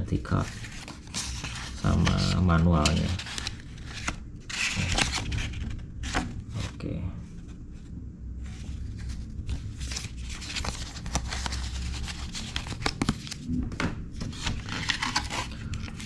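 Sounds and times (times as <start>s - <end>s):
paper rustling and crackling: 0.3s - 6.8s, 8.5s - 16.0s.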